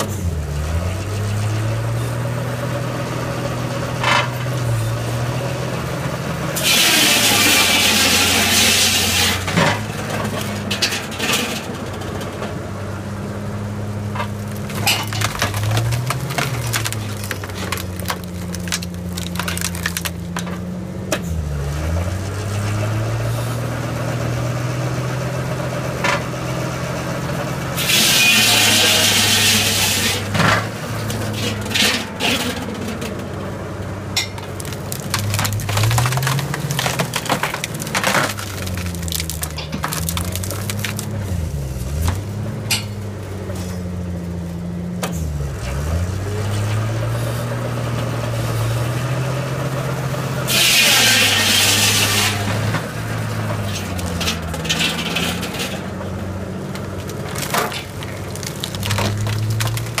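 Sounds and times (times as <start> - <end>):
engine running under load: 0.0 - 60.0
logs cracking and splintering: 3.5 - 10.7, 14.0 - 23.2, 27.8 - 33.6, 34.2 - 42.4, 45.0 - 60.0.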